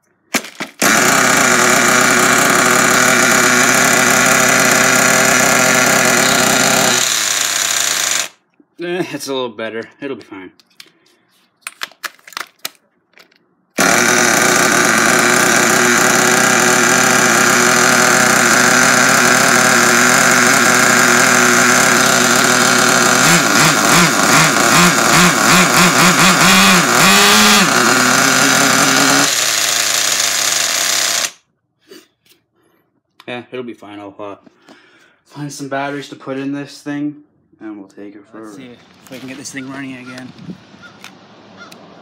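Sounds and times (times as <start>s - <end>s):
small nitro engine running: 0.4s - 8.4s, 13.8s - 31.4s.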